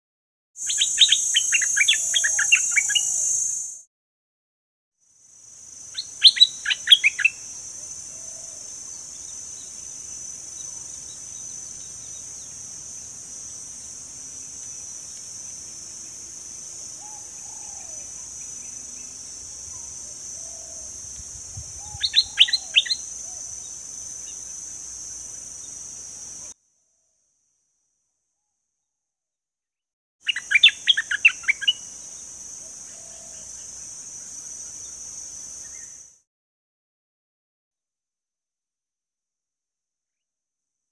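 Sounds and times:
bird singing: 0:00.6 - 0:03.8, 0:05.9 - 0:24.9, 0:30.2 - 0:35.0
high-pitched buzz: 0:00.6 - 0:03.8.

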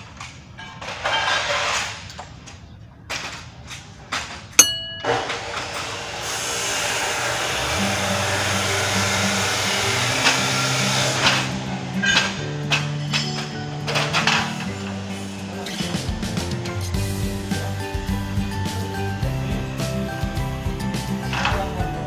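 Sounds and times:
sharp metallic clink: 0:04.6 - 0:05.6
power tool hissing: 0:06.1 - 0:12.1
background music: 0:07.6 - 0:22.0.

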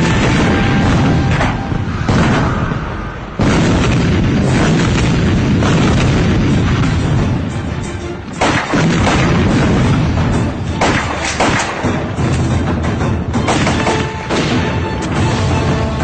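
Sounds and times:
dramatic score music: 0:00.0 - 0:16.0
explosion boom and rumble: 0:00.0 - 0:16.0.

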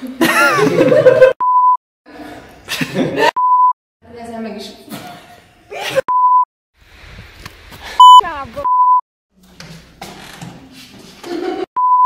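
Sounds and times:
censor bleeps: 0:01.4 - 0:01.8, 0:03.4 - 0:03.8, 0:06.1 - 0:06.5, 0:08.0 - 0:09.0, 0:11.8 - 0:12.0.

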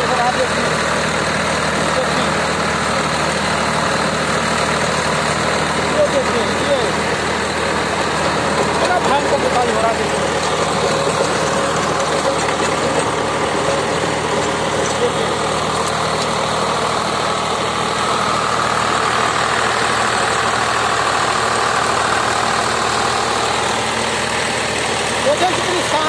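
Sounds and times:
rotavator churning soil: 0:00.0 - 0:26.0
tractor diesel engine under load: 0:00.0 - 0:26.0.

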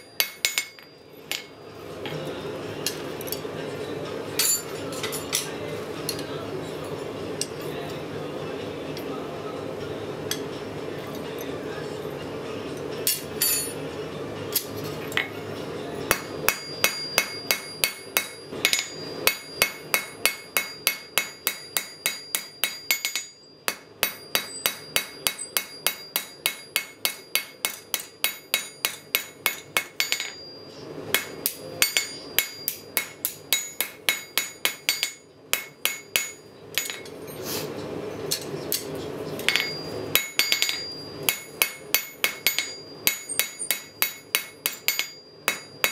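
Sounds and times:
hammer striking metal on anvil: 0:00.0 - 0:01.6, 0:04.4 - 0:05.5, 0:13.0 - 0:13.8, 0:16.0 - 0:37.2, 0:38.3 - 0:45.9.

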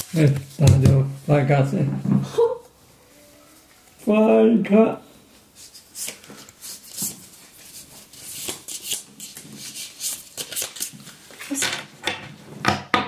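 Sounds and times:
playing cards rustling: 0:05.6 - 0:11.7.

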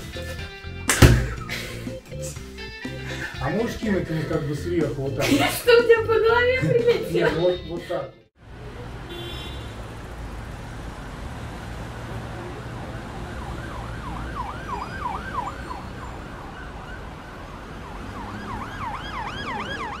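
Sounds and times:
street traffic rumble: 0:08.3 - 0:20.0
emergency siren sweeping: 0:12.2 - 0:20.0.

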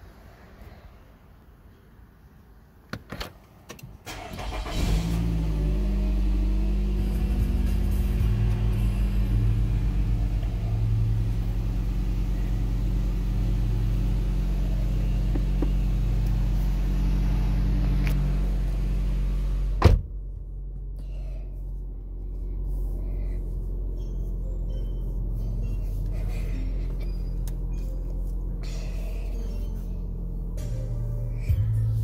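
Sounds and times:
car engine idling: 0:04.1 - 0:32.0
sharp thump: 0:19.8 - 0:20.2.

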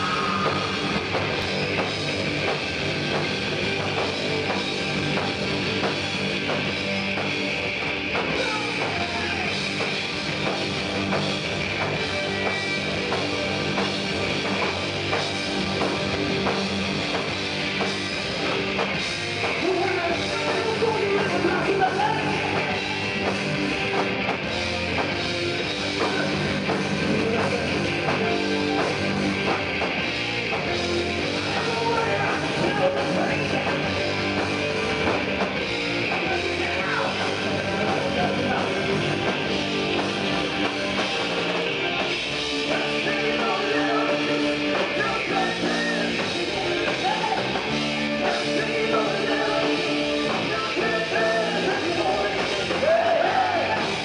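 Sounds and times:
bass guitar: 0:00.0 - 0:54.0
drum kit: 0:00.0 - 0:54.0
electric guitars: 0:00.0 - 0:54.0.

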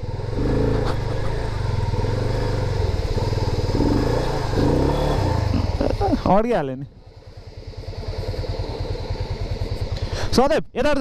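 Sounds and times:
motorcycle engine revving under load: 0:00.0 - 0:06.3.

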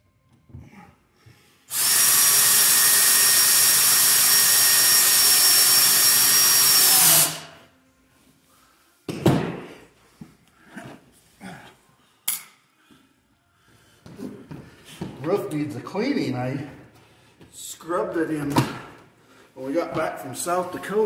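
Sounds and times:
power drill whining: 0:01.7 - 0:07.6.

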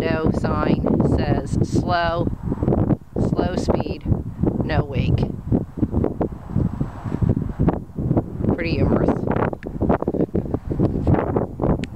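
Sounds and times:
wind buffeting microphone: 0:00.0 - 0:11.9.

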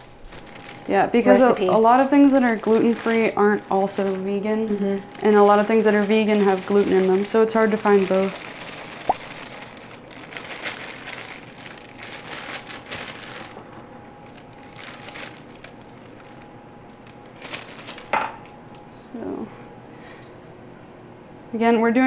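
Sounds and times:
plastic bag crinkling: 0:00.0 - 0:18.8
powder pouring: 0:08.1 - 0:10.1.

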